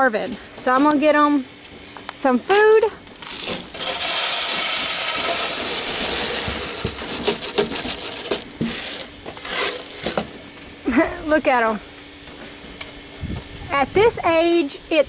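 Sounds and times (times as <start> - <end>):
pellets clicking and rattling: 3.1 - 10.3
pellets pouring into feeder: 3.2 - 10.1.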